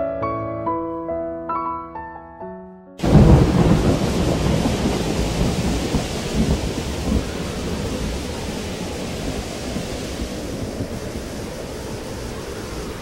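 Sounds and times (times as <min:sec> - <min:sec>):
soft piano music: 0:00.0 - 0:03.4
heavy rain: 0:03.0 - 0:13.0
thunder crash with low rumble: 0:03.0 - 0:13.0.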